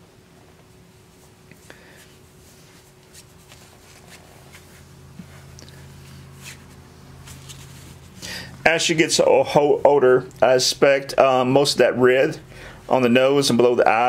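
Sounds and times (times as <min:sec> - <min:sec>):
low steady hum: 0:00.0 - 0:14.0
rustling on nylon cloth: 0:00.6 - 0:08.3.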